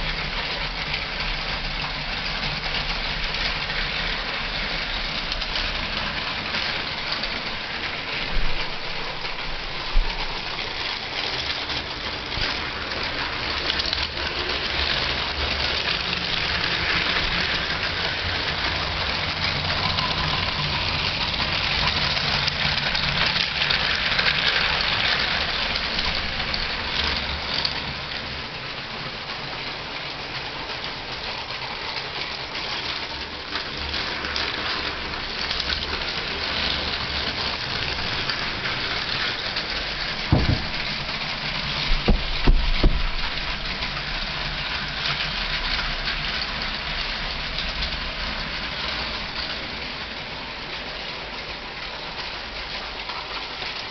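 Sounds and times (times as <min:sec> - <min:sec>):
toy train motors whirring on track: 0:00.0 - 0:53.9
short knocks: 0:40.3 - 0:40.8.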